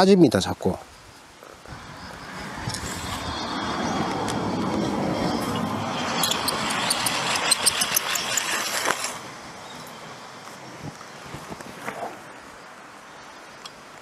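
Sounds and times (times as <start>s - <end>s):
wooden reel spinning rattle: 4.1s - 9.2s.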